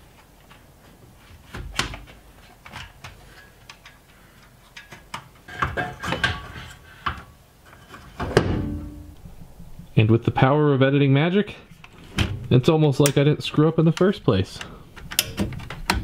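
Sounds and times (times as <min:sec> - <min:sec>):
metallic knocks and clanks: 0:04.8 - 0:07.2, 0:07.9 - 0:10.0.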